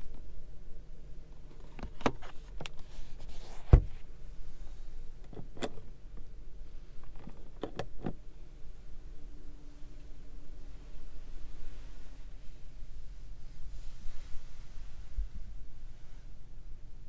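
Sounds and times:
visor thump: 3.6 - 4.0.

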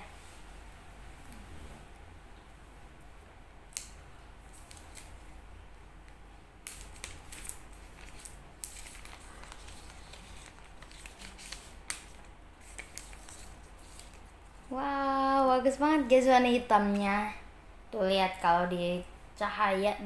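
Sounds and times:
plastic film crackling: 6.6 - 14.3.

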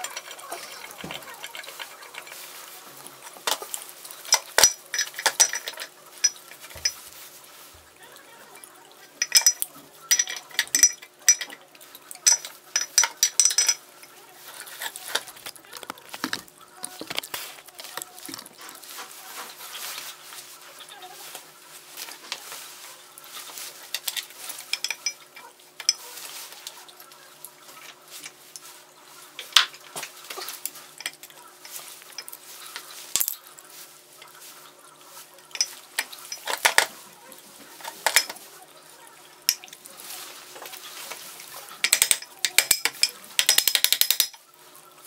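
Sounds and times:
steel parts clinking and tapping: 0.0 - 7.2, 9.0 - 18.5, 23.4 - 26.8, 29.4 - 34.5, 35.4 - 37.0, 37.7 - 38.5, 39.4 - 39.8, 41.8 - 44.4.

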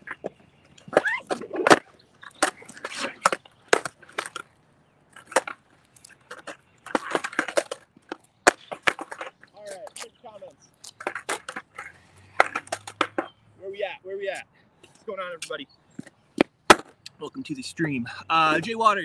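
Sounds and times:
skateboard knocking on pavement: 6.3 - 10.2, 10.9 - 13.3.

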